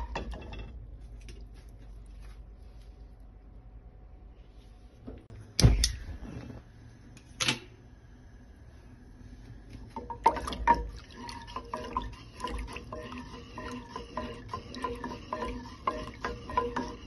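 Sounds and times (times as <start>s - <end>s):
liquid sloshing: 10.0s - 17.0s
wooden spoon scraping a saucepan: 10.0s - 17.0s.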